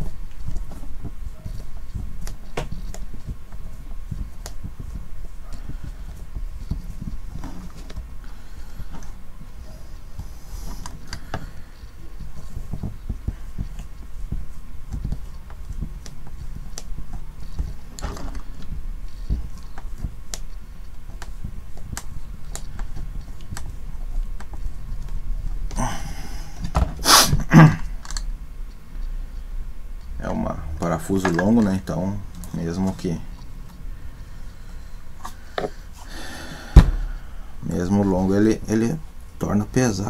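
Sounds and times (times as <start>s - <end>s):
low handling rumble: 29.4s - 35.2s.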